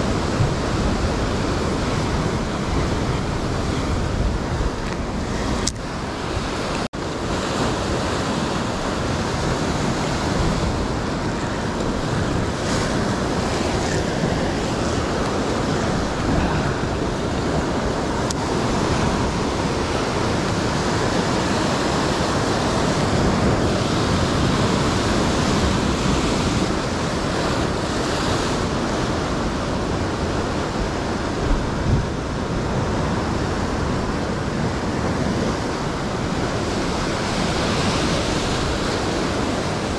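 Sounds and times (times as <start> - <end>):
ocean surf breaking on rocks: 0.0 - 39.9
wind on microphone: 0.0 - 39.9.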